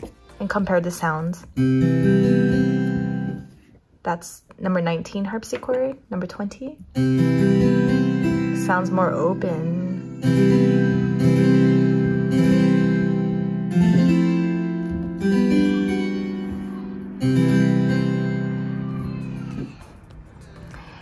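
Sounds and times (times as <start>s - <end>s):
harpsichord chords: 1.5s - 3.5s, 6.9s - 19.1s.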